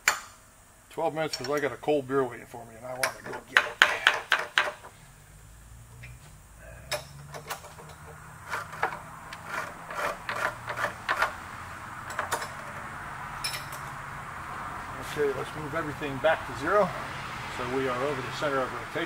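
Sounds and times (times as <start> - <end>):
faint low hum: 0.0 - 19.0
metal parts clicking on a vise: 6.9 - 11.4, 12.0 - 12.8.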